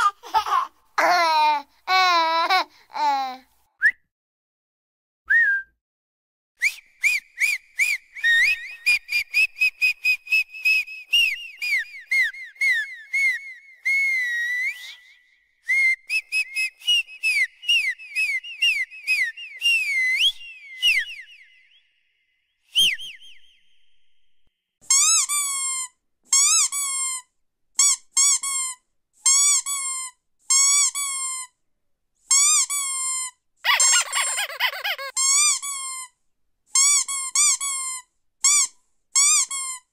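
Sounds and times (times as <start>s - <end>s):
person whistling chirping notes: 5.3s - 5.8s, 6.6s - 22.0s.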